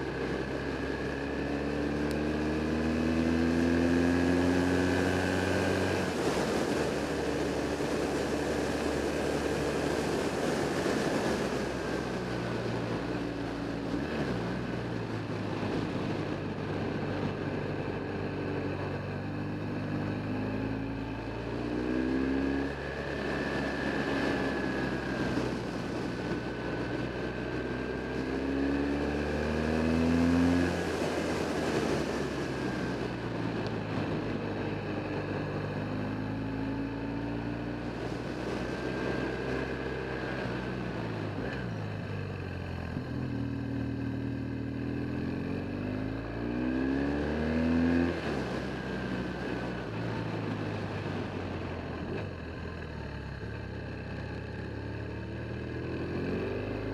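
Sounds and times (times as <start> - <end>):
wind and road noise: 0.0 - 56.9
motorcycle engine revving: 34.4 - 56.9.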